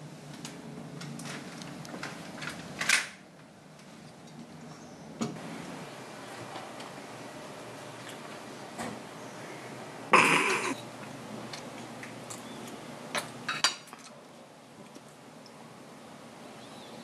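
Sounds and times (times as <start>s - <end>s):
loud mouth noise: 10.2s - 10.8s.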